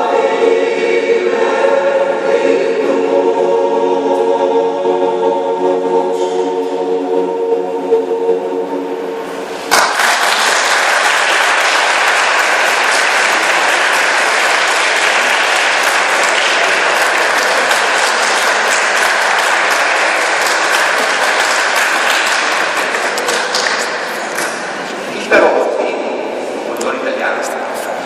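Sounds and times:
choir singing: 0.0s - 25.0s
audience applause: 9.7s - 24.7s.

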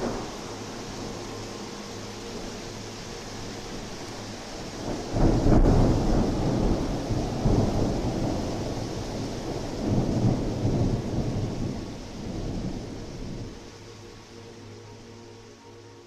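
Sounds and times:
thunder rumbling: 0.0s - 2.7s, 4.6s - 13.7s
steady rain hissing: 0.0s - 16.0s.

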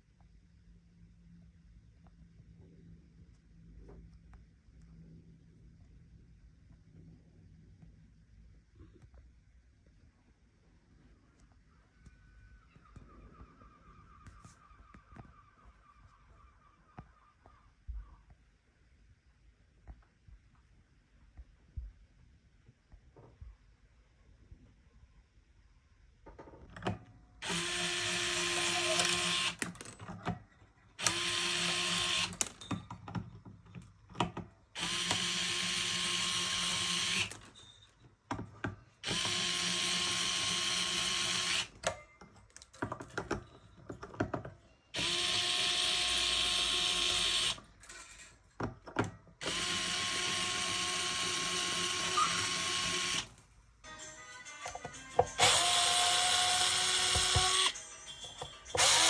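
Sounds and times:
small power drill whining: 27.4s - 29.9s, 31.0s - 32.6s, 34.8s - 37.7s, 39.0s - 41.9s, 44.9s - 47.7s, 49.4s - 53.4s, 55.4s - 57.8s, 58.7s - 59.0s.

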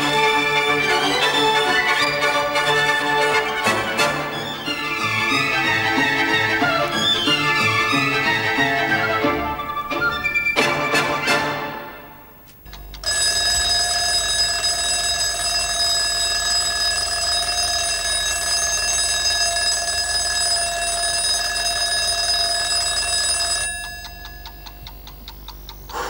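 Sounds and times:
orchestral string music: 0.0s - 12.4s
alarm clock bell ringing: 13.0s - 24.9s
clock ticking: 23.7s - 26.0s.

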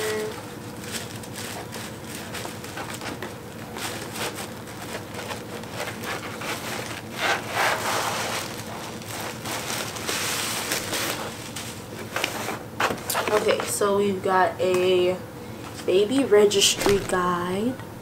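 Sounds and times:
tissue paper rustling: 0.0s - 13.7s.

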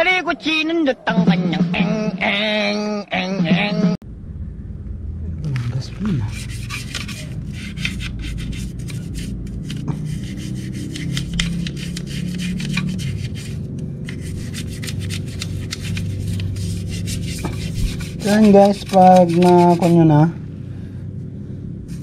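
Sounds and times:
brush scrubbing metal: 6.2s - 20.2s.

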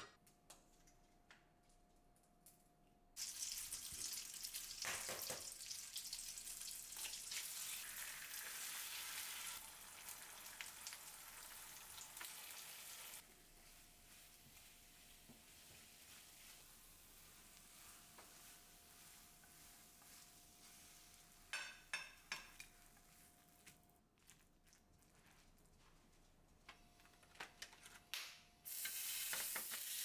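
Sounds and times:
egg sizzling in a pan: 3.2s - 22.6s, 28.7s - 30.0s.

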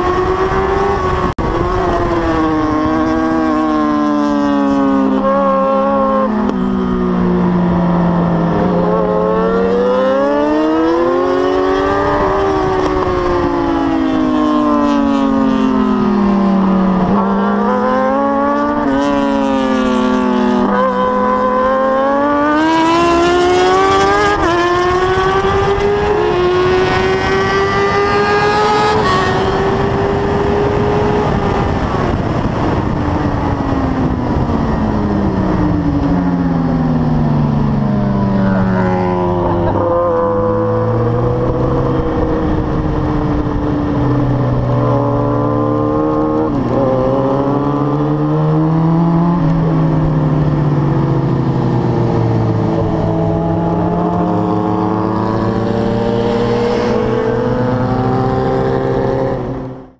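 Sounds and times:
wind rush: 0.0s - 5.2s, 21.8s - 59.9s
motorcycle engine shifting gears: 0.0s - 59.9s.

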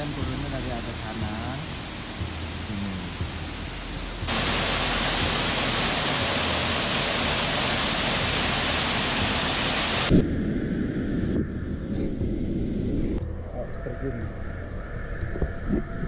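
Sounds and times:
waterfall rushing into pool: 0.0s - 10.1s.

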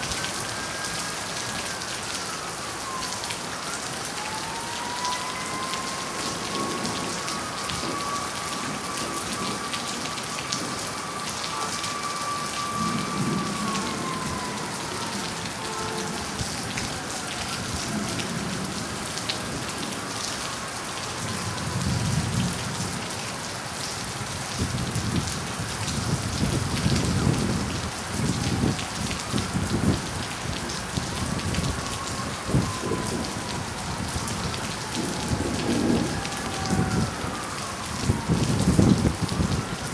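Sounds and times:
steady rain falling: 0.0s - 39.9s
thunder rumbling: 4.3s - 19.9s, 24.6s - 39.9s.

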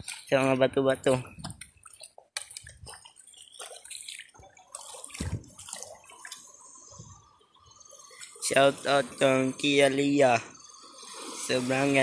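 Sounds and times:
wading splashes in seawater: 1.7s - 6.5s.

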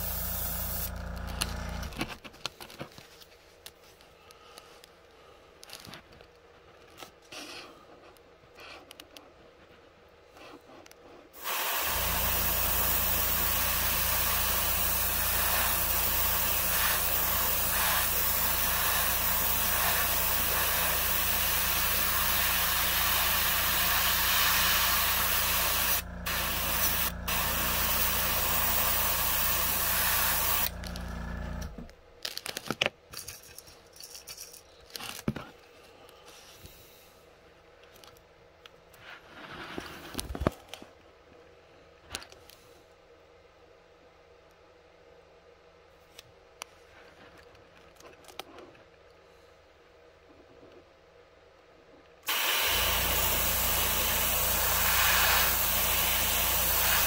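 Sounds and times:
airbrush spraying hiss: 0.0s - 1.0s, 11.4s - 30.8s, 52.3s - 57.0s
compressor humming: 0.0s - 2.1s, 11.4s - 32.0s, 52.3s - 57.0s.

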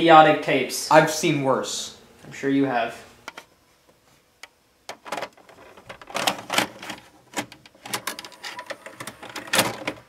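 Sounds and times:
tape mechanism clicks and clunks: 4.4s - 10.0s.

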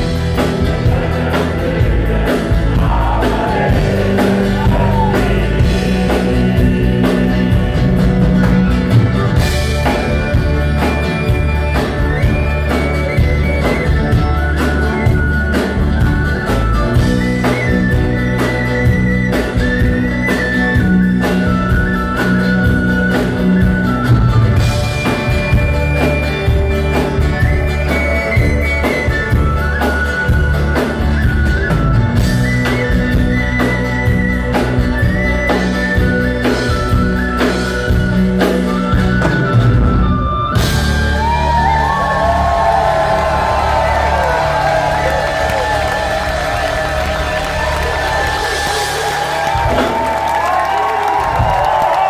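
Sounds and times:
audience cheering and whistling: 0.0s - 52.0s
live rock band playing: 0.0s - 52.0s.

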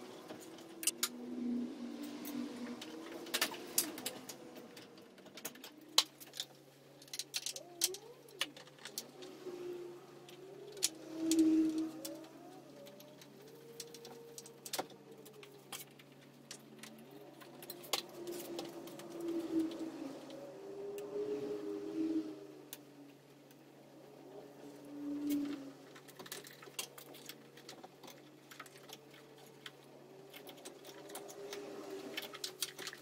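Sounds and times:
faint wavering tones: 0.0s - 33.0s
low steady hum: 0.0s - 33.0s
plastic and metal parts clicking: 3.1s - 9.3s, 25.3s - 33.0s.

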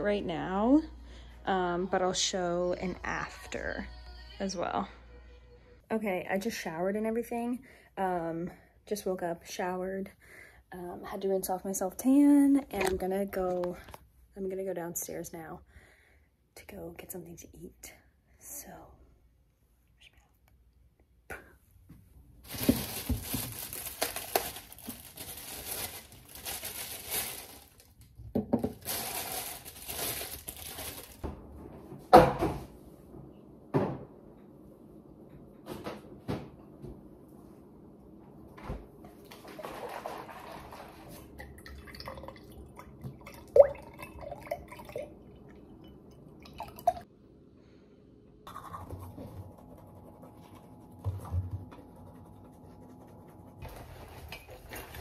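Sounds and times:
water running: 39.2s - 47.1s.

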